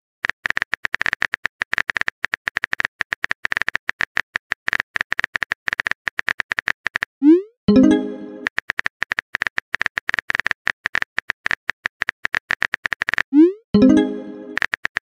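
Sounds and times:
phone keyboard typing clicks: 0:07.8 - 0:15.0.

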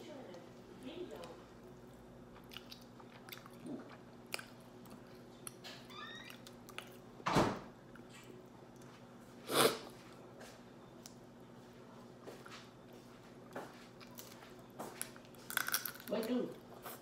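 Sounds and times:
chewing: 0:01.2 - 0:05.6
crab shell cracking: 0:15.5 - 0:16.1.

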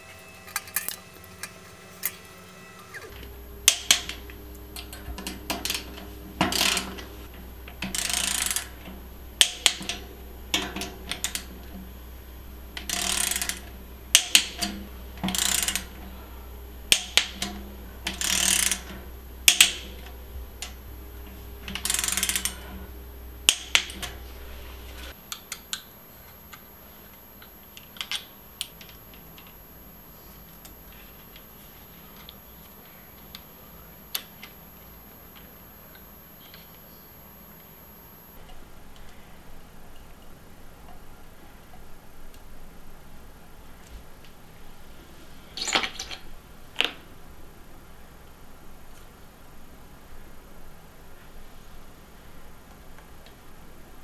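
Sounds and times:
low steady hum: 0:00.0 - 0:54.0
ratchet bursts: 0:07.8 - 0:11.5, 0:12.8 - 0:16.0, 0:18.1 - 0:20.8, 0:21.7 - 0:22.7.

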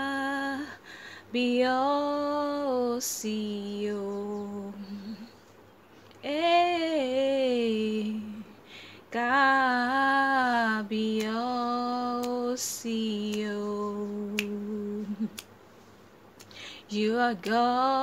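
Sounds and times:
woman singing unaccompanied: 0:00.0 - 0:05.5, 0:06.1 - 0:15.6, 0:16.4 - 0:18.0
singer breathing: 0:00.8 - 0:01.3, 0:08.6 - 0:09.1, 0:16.5 - 0:16.9.

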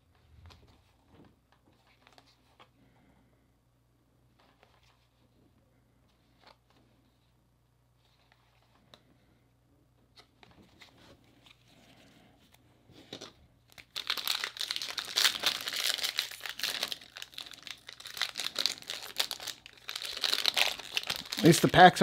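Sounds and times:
foil wrapper crinkling and tearing: 0:13.7 - 0:22.0.

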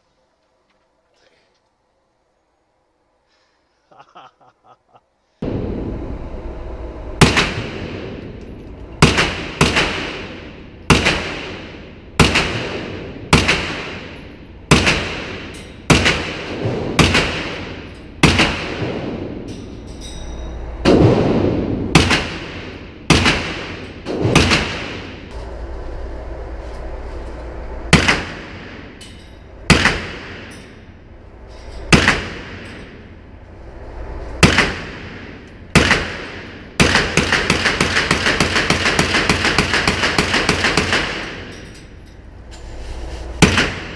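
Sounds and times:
carbine gunshots echoing indoors: 0:07.2 - 0:19.6, 0:20.8 - 0:25.3, 0:27.9 - 0:30.8, 0:31.9 - 0:33.0, 0:34.4 - 0:41.9.

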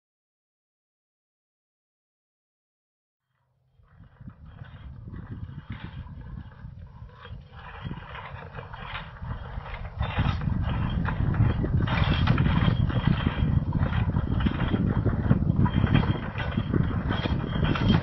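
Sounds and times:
steady low rumble: 0:03.7 - 0:18.0
carriage and harness rattling: 0:03.8 - 0:18.0.

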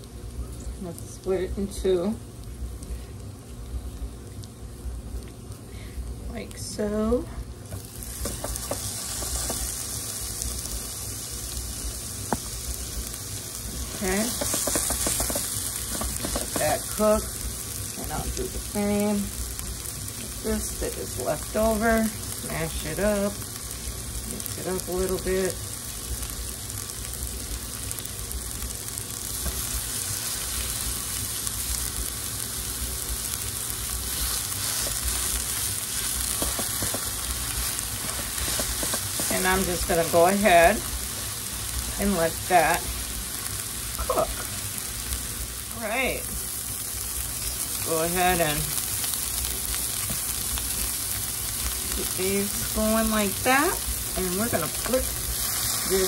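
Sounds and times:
meat and onions sizzling in oil: 0:00.0 - 0:56.0.

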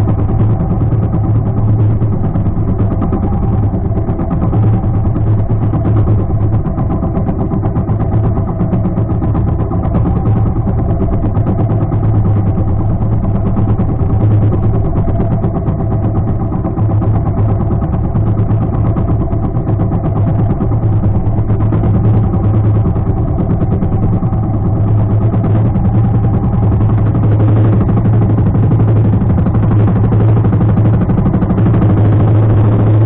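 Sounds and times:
boat engine humming: 0:00.0 - 0:33.0.

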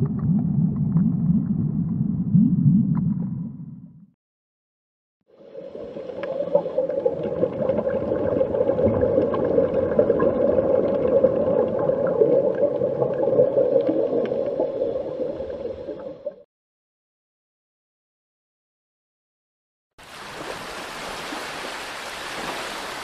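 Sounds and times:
underwater wash: 0:00.0 - 0:03.7, 0:05.3 - 0:16.4
low hum: 0:00.0 - 0:04.1.

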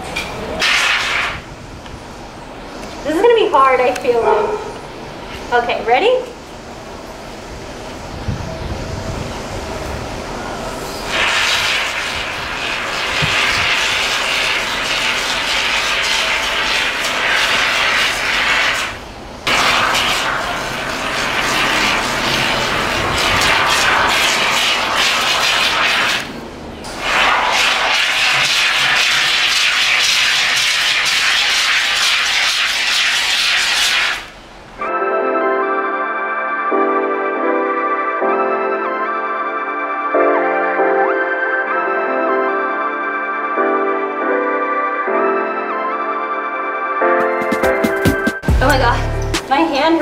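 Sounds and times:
spray foam can hissing: 0:00.6 - 0:01.4, 0:11.1 - 0:34.4.

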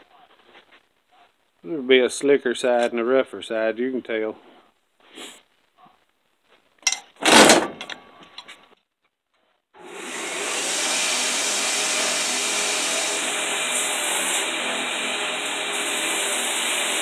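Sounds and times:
belt grinder motor running: 0:13.1 - 0:17.0.

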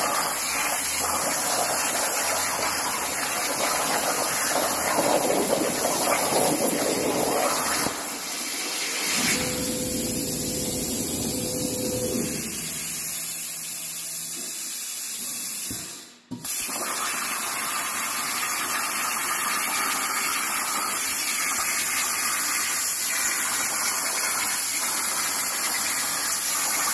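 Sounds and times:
plasma torch hissing: 0:05.8 - 0:17.3.

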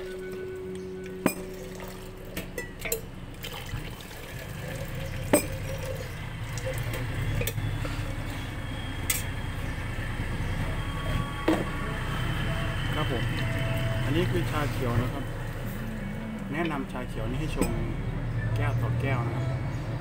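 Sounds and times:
tea pouring and splashing: 0:01.5 - 0:02.2, 0:03.4 - 0:07.0.

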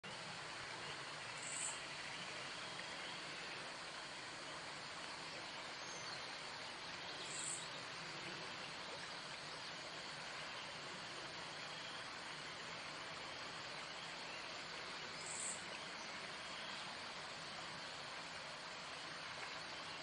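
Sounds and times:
outdoor ambient hiss: 0:00.0 - 0:20.0.

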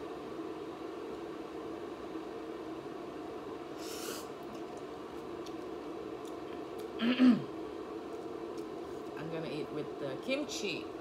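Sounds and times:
low room hum: 0:00.0 - 0:11.0
breathy sniff: 0:03.8 - 0:04.3.

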